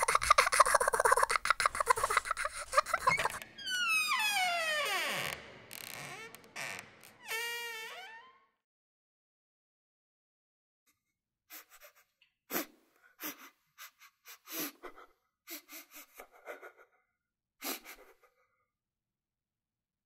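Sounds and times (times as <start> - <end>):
person gasping and breathing heavily: 0.0 - 3.4, 11.5 - 17.0.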